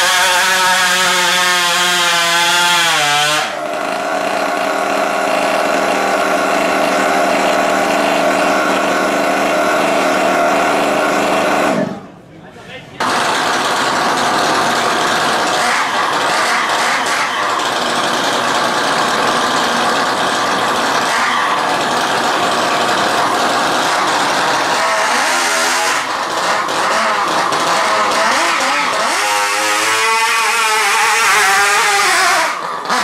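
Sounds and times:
model engine revving: 0.0s - 12.1s, 13.0s - 33.0s.

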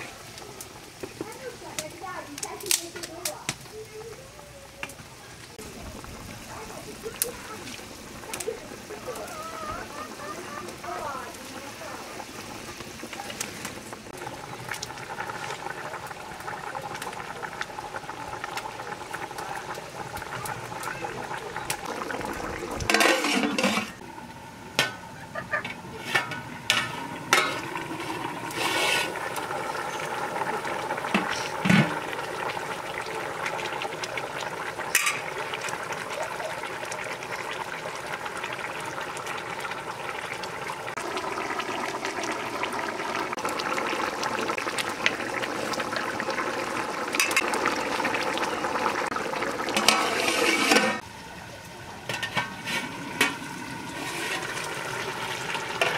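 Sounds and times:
curry bubbling in a pot: 0.0s - 55.9s
metal lid set on pot: 22.9s - 24.0s.

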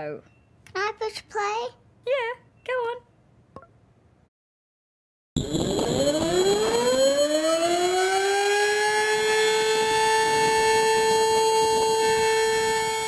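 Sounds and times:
siren winding up: 5.4s - 13.0s.

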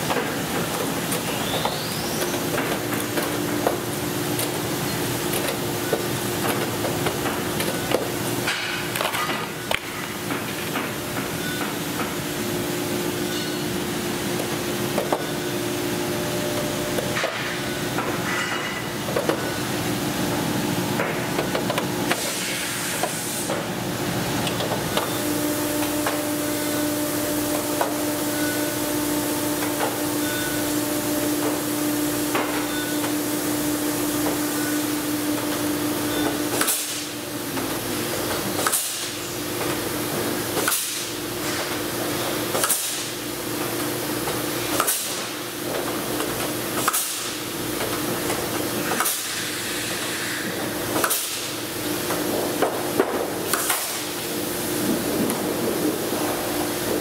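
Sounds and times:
steady hum: 0.0s - 38.6s, 39.2s - 57.0s
pneumatic rivet puller snapping: 42.5s - 43.1s.

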